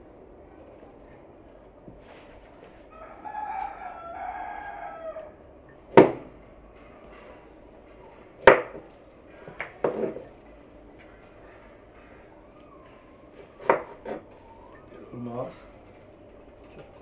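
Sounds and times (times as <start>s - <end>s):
rooster crowing: 2.8s - 5.7s.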